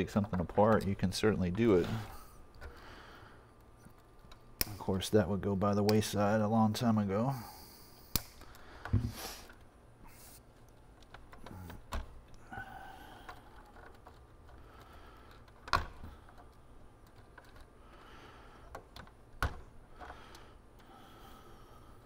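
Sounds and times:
faint rustling of wiring: 0.0s - 22.0s
plastic wire ties snipped: 8.0s - 8.6s.

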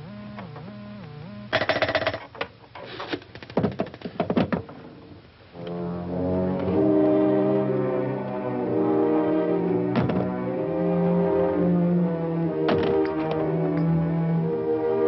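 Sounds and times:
sustained brass chord: 5.6s - 15.0s.

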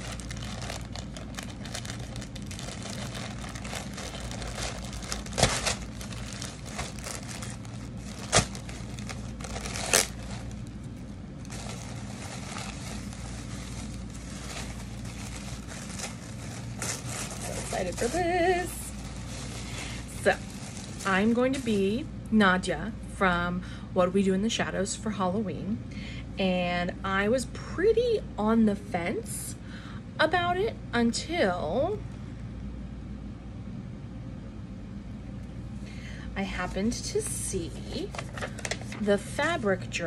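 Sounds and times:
packaging wrap crinkling: 0.0s - 21.9s, 37.2s - 39.4s
steady low hum: 0.0s - 40.0s.

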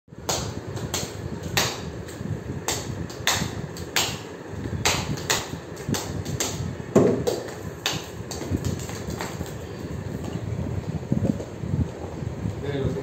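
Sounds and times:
slaps and taps on tiled floor: 4.8s - 9.6s
low rumble of movement: 5.9s - 13.0s.

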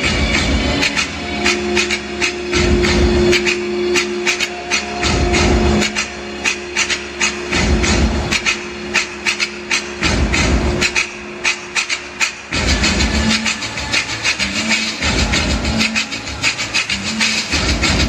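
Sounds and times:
low bass pulse: 0.0s - 11.8s
electronic music: 0.0s - 18.0s
held synth notes: 0.0s - 18.0s.

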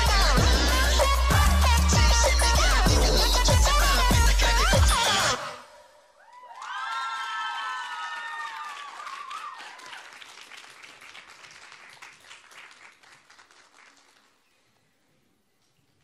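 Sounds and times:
audience applauding: 6.3s - 14.4s.

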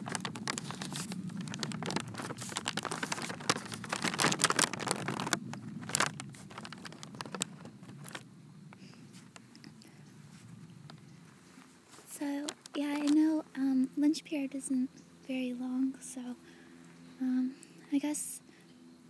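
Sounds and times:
paper bag crinkling: 0.0s - 9.5s, 11.6s - 13.4s.

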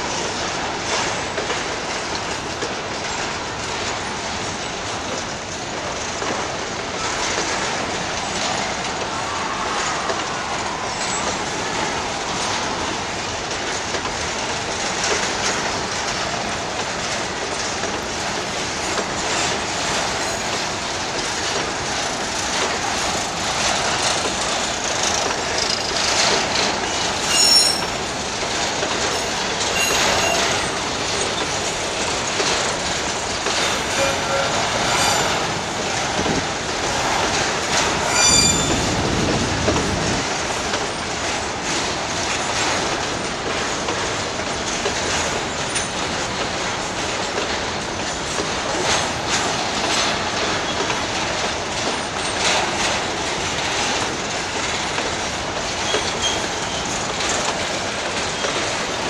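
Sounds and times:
freight train rolling past: 0.0s - 59.0s
wheels clattering over rails: 0.0s - 59.0s
high wheel squeals: 26.8s - 28.0s, 29.2s - 31.5s, 33.7s - 35.9s, 37.2s - 39.4s.

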